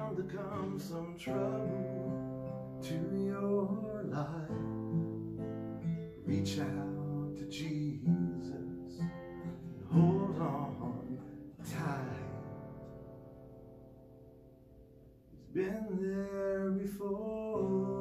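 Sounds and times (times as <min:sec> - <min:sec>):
man singing: 0:00.0 - 0:05.0, 0:06.2 - 0:12.7, 0:15.4 - 0:18.0
acoustic guitar strumming: 0:00.0 - 0:18.0.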